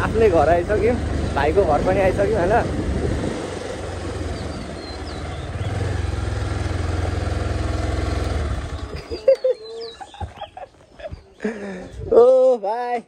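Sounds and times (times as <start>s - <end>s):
motorcycle engine running: 0.0s - 9.2s.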